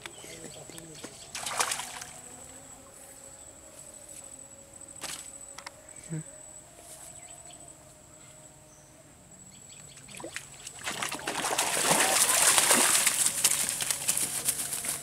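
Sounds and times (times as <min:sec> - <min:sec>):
fish thrashing and splashing: 0:10.2 - 0:14.5.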